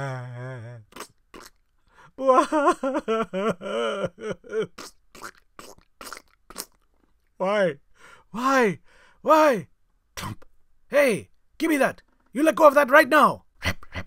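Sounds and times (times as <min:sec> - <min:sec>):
person fake crying with wails: 0:00.0 - 0:00.9, 0:02.2 - 0:04.9.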